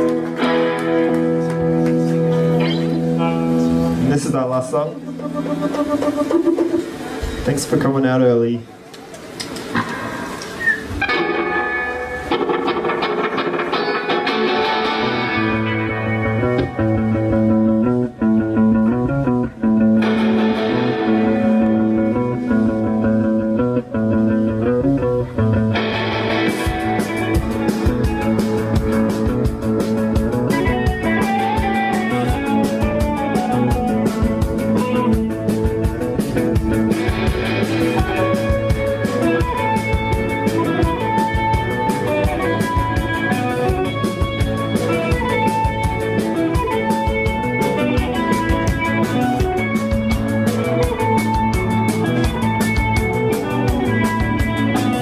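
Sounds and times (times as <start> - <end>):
bass guitar: 0.0 - 8.1, 9.6 - 55.0
electric guitars: 0.0 - 55.0
drum kit and cymbals: 2.1 - 8.0, 25.8 - 55.0.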